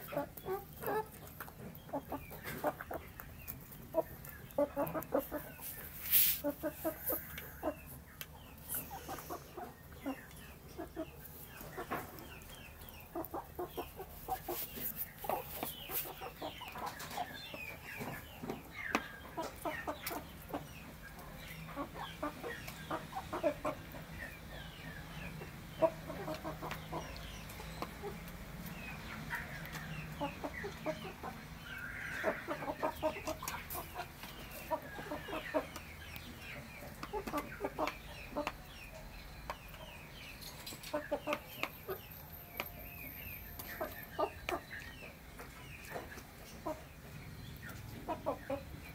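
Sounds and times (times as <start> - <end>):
chickens clucking softly: 0.0 - 43.0, 43.6 - 48.9
beaks tapping a dish: 39.4 - 42.8.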